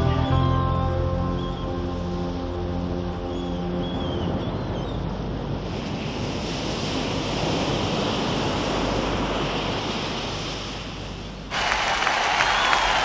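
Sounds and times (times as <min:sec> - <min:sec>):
wind: 0:00.0 - 0:13.0
sea water rushing: 0:05.0 - 0:13.0.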